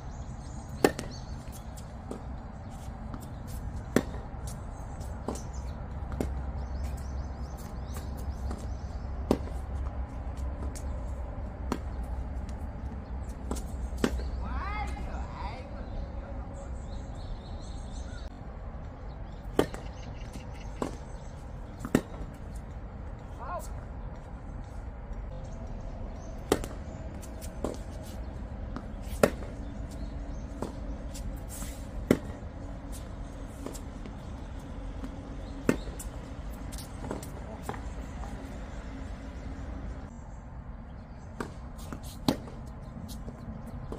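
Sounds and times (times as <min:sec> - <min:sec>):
tennis ball bouncing: 0:00.6 - 0:15.2, 0:19.3 - 0:23.2, 0:26.2 - 0:39.9, 0:41.3 - 0:43.9
racket striking tennis ball: 0:00.7 - 0:02.3, 0:03.0 - 0:10.0, 0:11.6 - 0:12.6, 0:13.3 - 0:14.4, 0:19.4 - 0:22.6, 0:26.4 - 0:38.3, 0:41.4 - 0:43.2.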